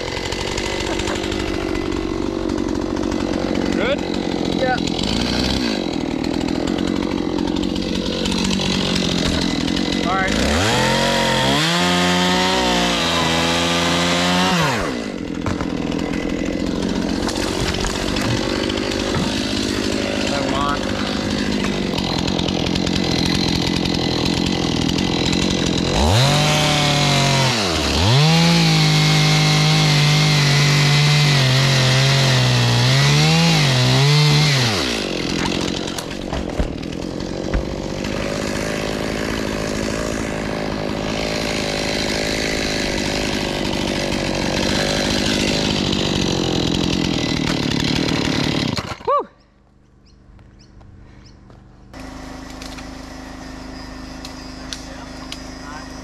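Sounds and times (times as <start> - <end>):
chainsaw cutting tree trunk: 0.0 - 49.3, 51.9 - 56.0.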